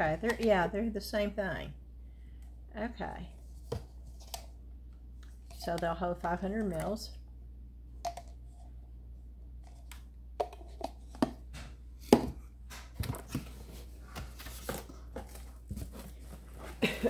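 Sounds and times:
plastic cups clicking and knocking: 8.0s - 8.4s, 9.9s - 11.4s.

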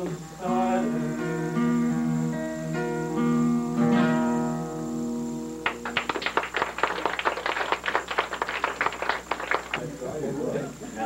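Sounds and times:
acoustic guitar chord ringing: 0.0s - 6.0s
audience applause: 5.6s - 9.9s.

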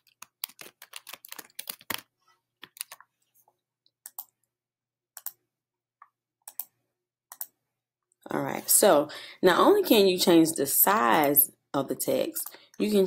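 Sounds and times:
typing on a computer keyboard: 0.0s - 2.0s.

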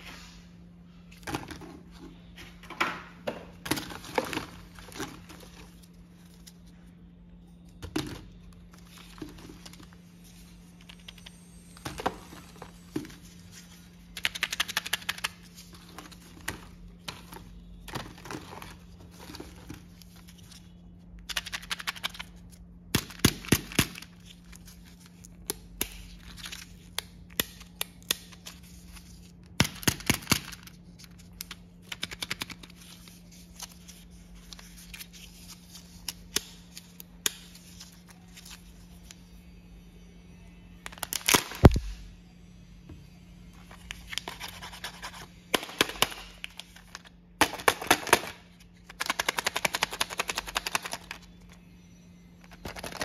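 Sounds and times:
steady low hum: 0.0s - 53.0s
plastic wrapper crinkling: 52.4s - 53.0s.

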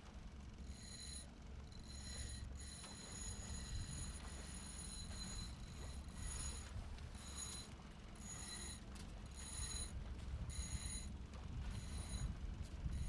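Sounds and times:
high-pitched ringing tone: 0.6s - 13.0s
wind rumbling on microphone: 9.6s - 13.0s.

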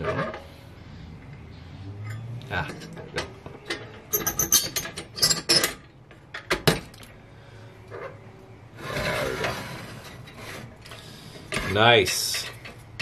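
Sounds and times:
lantern mechanism scraping: 0.0s - 0.7s, 2.0s - 5.8s, 7.8s - 13.0s
metal lantern clinking and rattling: 2.0s - 5.8s.

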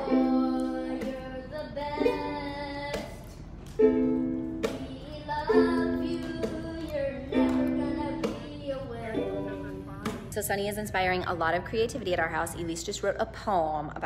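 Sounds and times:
boy singing: 0.0s - 3.3s, 4.7s - 10.3s
ukulele strumming: 0.0s - 10.4s.

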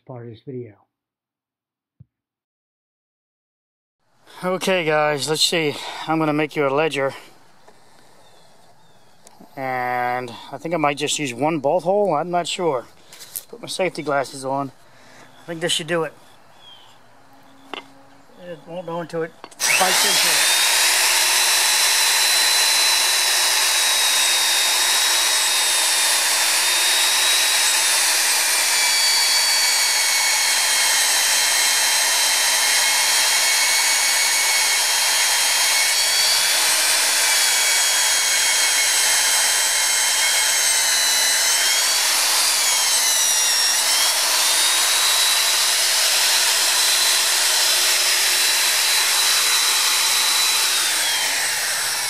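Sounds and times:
drill motor whine: 19.4s - 52.0s.

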